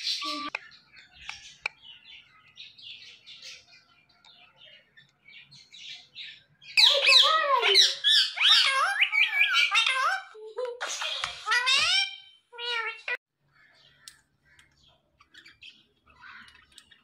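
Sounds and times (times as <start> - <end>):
parrot squawking: 6.8 - 13.2.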